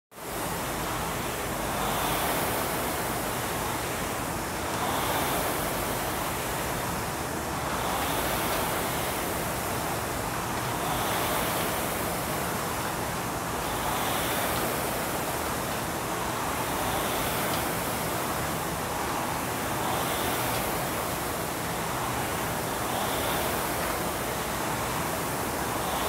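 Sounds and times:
rowing machine flywheels whooshing: 7.5s - 26.0s.

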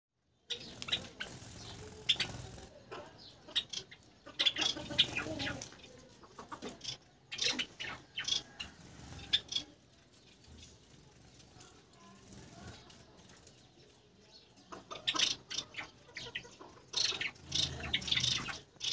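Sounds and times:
finches chirping: 0.3s - 9.7s, 11.5s - 18.9s
wings fluttering: 0.5s - 2.9s, 4.5s - 7.0s, 7.8s - 14.0s.

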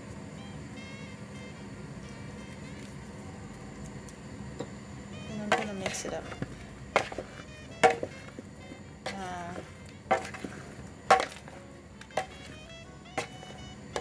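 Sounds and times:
plantain pieces knocking in plastic bowl: 5.5s - 8.5s, 9.1s - 14.0s.

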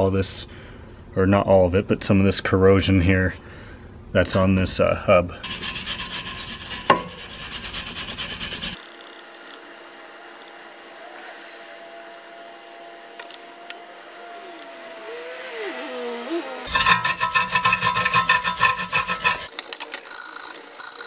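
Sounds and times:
wire brush scrubbing metal: 5.4s - 8.8s, 13.9s - 19.5s.

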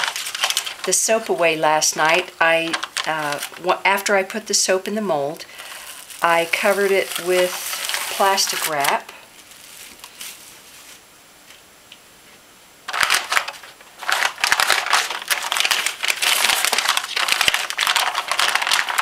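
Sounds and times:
paper crinkling and rustling: 0.0s - 3.7s, 5.5s - 11.0s, 12.9s - 19.0s
plastic wrap rustling: 0.0s - 11.6s, 12.9s - 19.0s.

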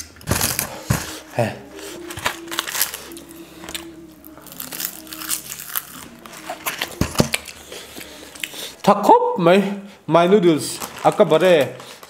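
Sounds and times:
noodles being chewed: 0.0s - 8.8s.

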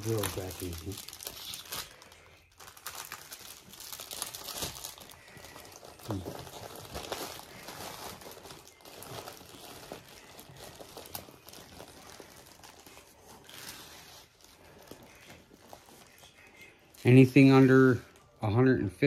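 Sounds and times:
plastic film crinkling: 0.0s - 18.7s.

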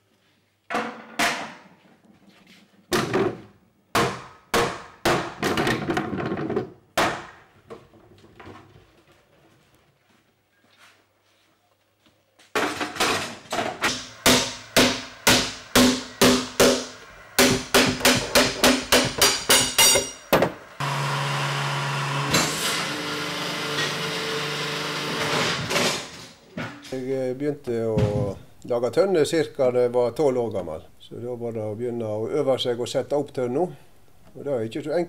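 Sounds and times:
workshop machine humming: 13.8s - 26.3s
hammer striking steel hoop: 13.9s - 20.5s.

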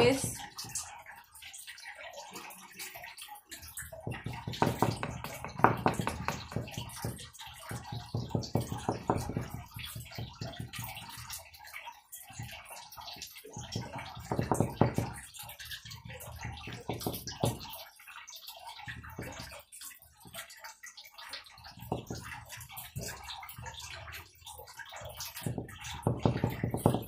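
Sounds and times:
paintbrush tapping on wood: 4.0s - 11.0s.

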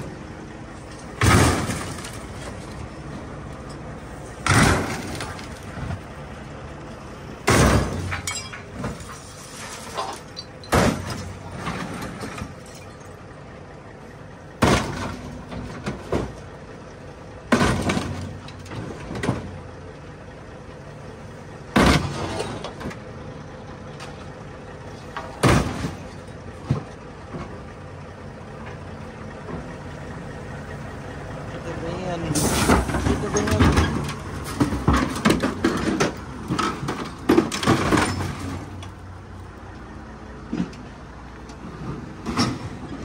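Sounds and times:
excavator bucket crushing car metal: 0.0s - 6.4s, 7.1s - 28.0s, 31.8s - 43.0s
diesel engine running: 0.0s - 43.0s
metal crackling and creaking: 7.5s - 13.3s, 32.4s - 39.9s.

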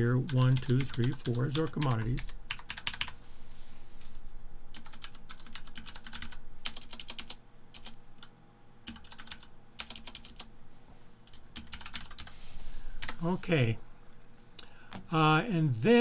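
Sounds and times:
typing on computer keyboard: 0.3s - 3.2s, 4.7s - 8.3s, 8.9s - 10.5s, 11.3s - 12.3s.

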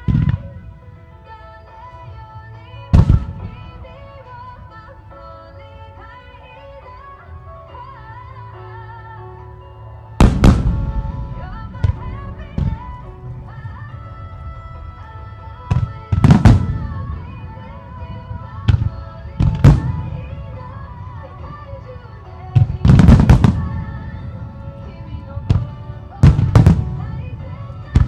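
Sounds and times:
music with long held tones: 0.0s - 28.0s
firework shells booming: 22.6s - 23.9s.

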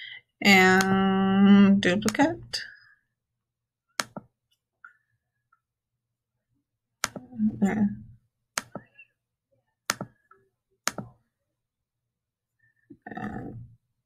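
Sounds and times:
mouse button clicks: 4.0s - 4.3s, 10.9s - 11.1s.

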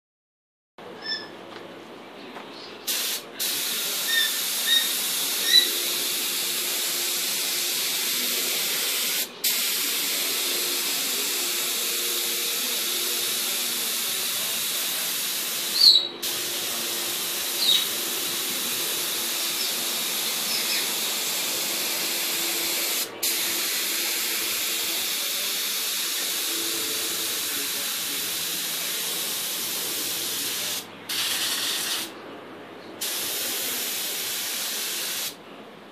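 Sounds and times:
spray gun hissing: 2.9s - 32.1s, 33.0s - 35.4s.

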